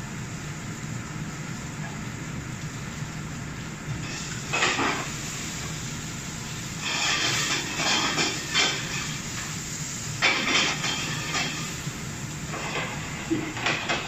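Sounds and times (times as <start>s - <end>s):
gas range hum: 0.0s - 14.0s.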